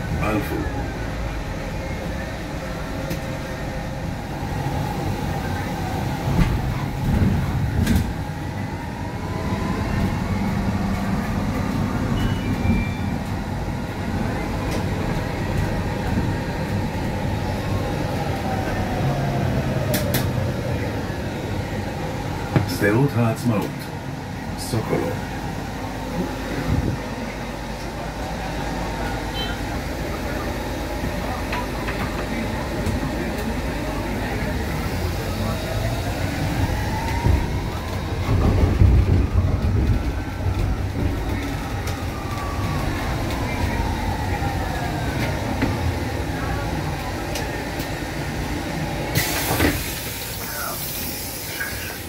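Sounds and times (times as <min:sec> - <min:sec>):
low road rumble inside bus: 0:00.0 - 0:52.0.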